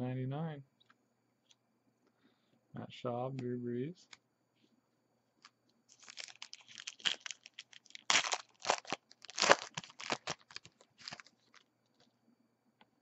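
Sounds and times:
foil wrapper crinkling and tearing: 5.9 - 11.7.

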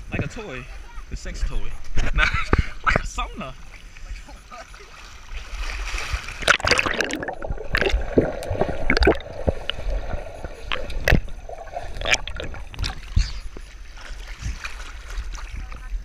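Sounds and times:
water splashing: 3.2 - 16.0
muffled underwater gurgling: 6.4 - 13.9.

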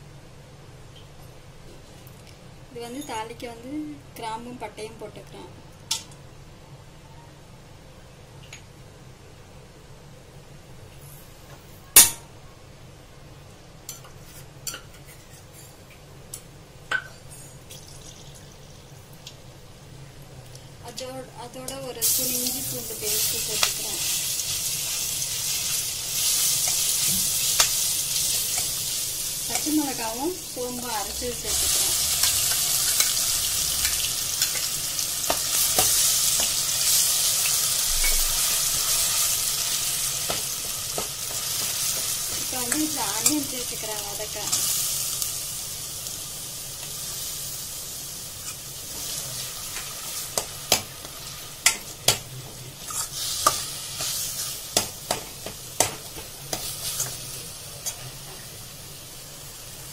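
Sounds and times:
low steady hum: 0.0 - 59.9
paste sizzling in hot oil: 22.0 - 52.2, 52.8 - 59.9.

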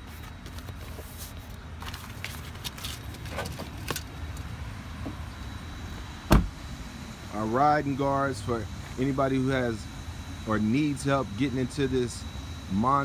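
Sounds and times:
car door slamming shut: 6.3 - 6.7.

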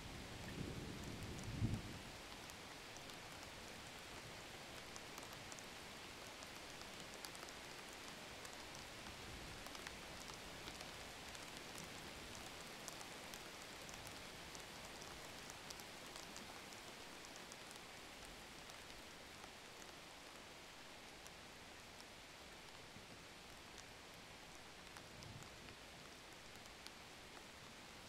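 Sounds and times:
steady hiss with crackles: 0.0 - 28.0.

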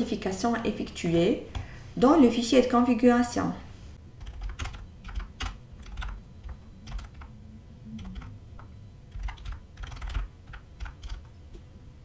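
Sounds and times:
computer keyboard typing: 4.2 - 7.3, 7.9 - 11.4.

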